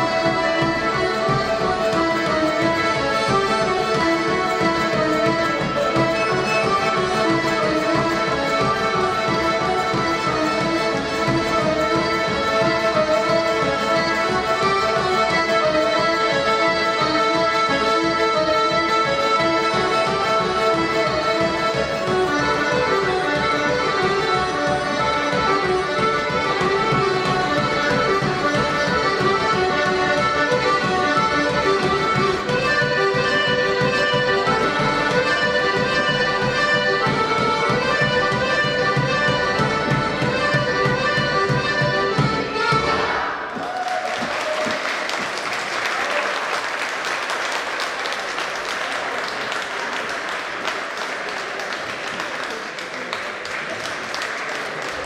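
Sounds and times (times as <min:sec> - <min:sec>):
folk dance music with accordion: 0:00.0 - 0:55.0
audience applause: 0:43.5 - 0:55.0.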